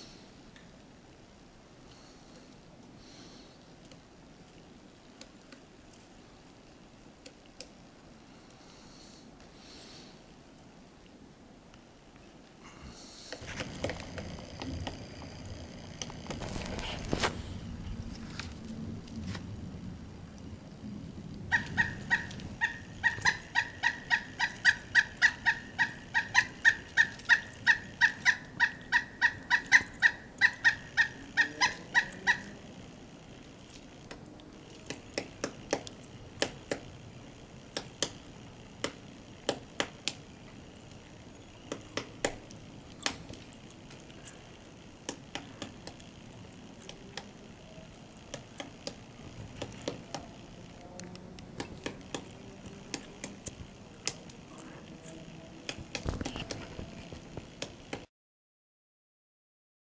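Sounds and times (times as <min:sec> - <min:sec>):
woodpecker calling: 0:21.4 - 0:55.3
woodpecker bill knocking on wood: 0:21.5 - 0:32.5, 0:34.9 - 0:36.9, 0:38.8 - 0:40.2, 0:41.7 - 0:42.4.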